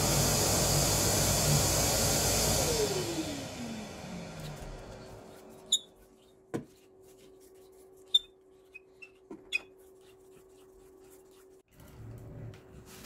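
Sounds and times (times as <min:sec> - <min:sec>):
disc sander winding down: 0:00.0 - 0:05.3.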